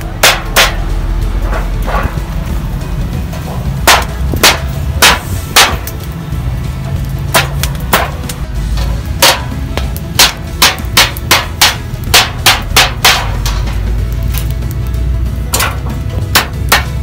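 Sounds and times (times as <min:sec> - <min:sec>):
hammer blows: 0:00.0 - 0:02.4, 0:03.3 - 0:06.1, 0:07.3 - 0:14.0, 0:15.5 - 0:17.0.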